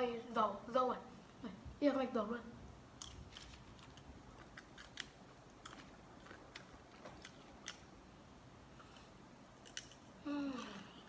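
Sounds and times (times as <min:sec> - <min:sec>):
popcorn being chewed: 0:03.0 - 0:08.1, 0:08.7 - 0:11.0.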